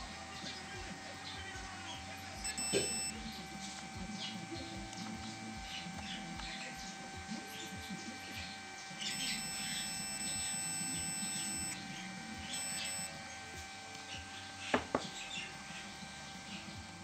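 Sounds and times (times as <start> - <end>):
sharp clicks: 0.0 - 16.3
high-pitched continuity beep: 2.2 - 13.2.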